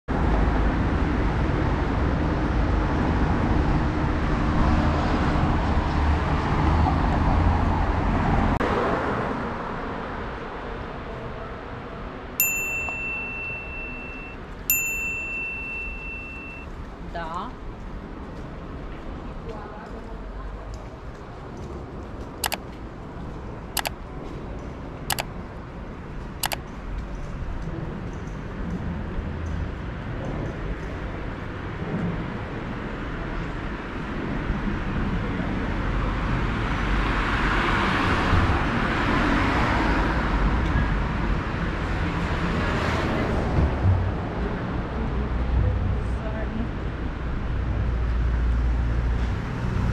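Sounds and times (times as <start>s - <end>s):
quieter street sound: 0.1s - 49.9s
sharp double clicks: 22.4s - 22.6s, 26.4s - 26.6s.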